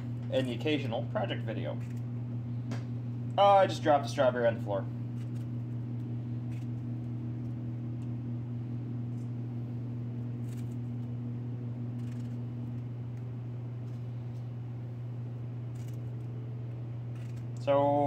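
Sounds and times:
low background hum: 0.0 - 18.0
knife cutting strawberries: 17.0 - 17.7.

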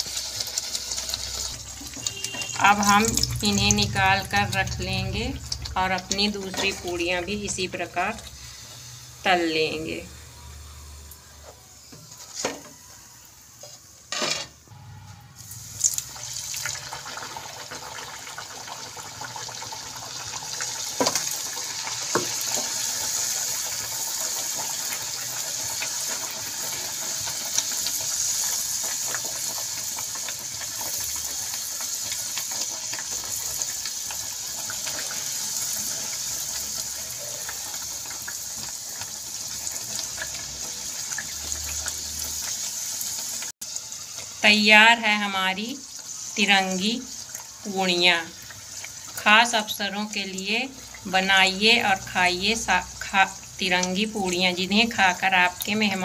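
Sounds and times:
deep-frying in hot oil: 0.0 - 56.0.

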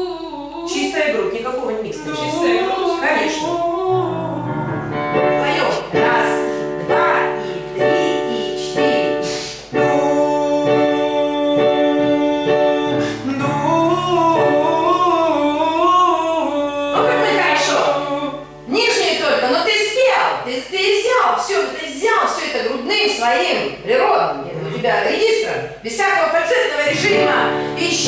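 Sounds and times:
person singing vocal exercise: 0.0 - 0.9, 2.0 - 5.0, 5.8 - 18.7
piano accompaniment: 1.9 - 20.4, 26.9 - 28.0.

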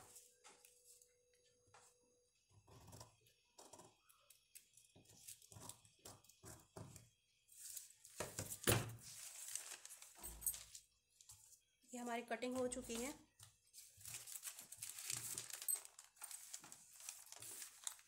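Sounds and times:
newspaper crackling rustle: 9.0 - 11.6, 12.6 - 18.0.

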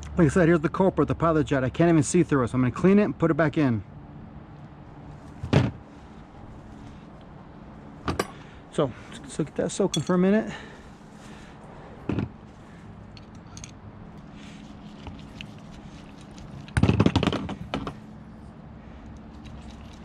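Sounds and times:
tools clattering: 9.8 - 10.3, 13.1 - 13.8
small metal parts clicking: 13.1 - 13.8, 19.0 - 20.0.

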